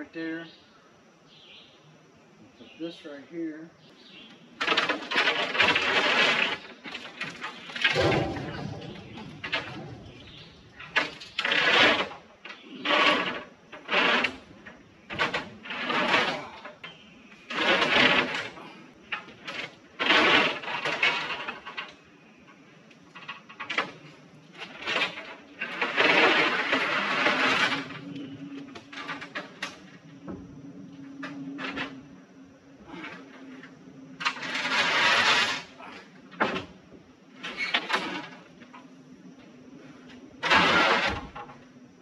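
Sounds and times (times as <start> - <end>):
plywood sheet scraping over mesh: 4.6 - 21.9, 23.2 - 30.1, 32.8 - 36.7, 37.4 - 38.8, 39.8 - 41.6.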